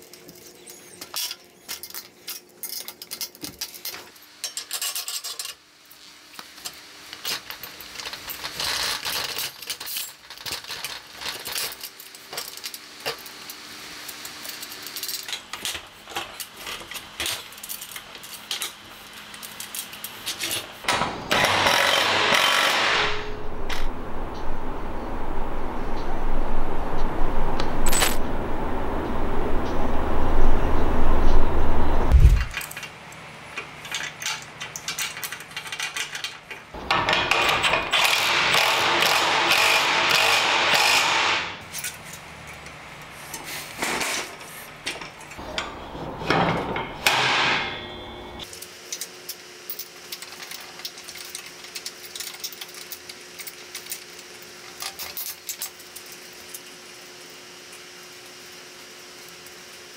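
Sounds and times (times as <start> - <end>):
metal parts clicking: 0.0 - 5.6, 7.2 - 12.8, 33.6 - 38.4, 48.9 - 56.6
low rumble: 23.1 - 32.6.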